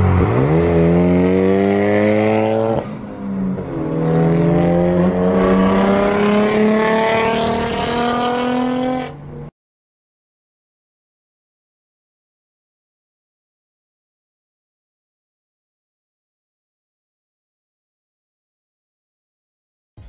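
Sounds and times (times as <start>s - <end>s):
car engine accelerating hard: 0.0s - 9.5s.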